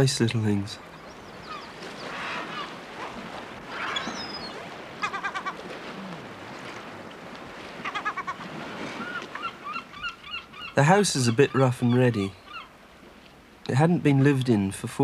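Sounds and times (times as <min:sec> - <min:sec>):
bird calling: 0:00.8 - 0:06.4, 0:07.8 - 0:12.8.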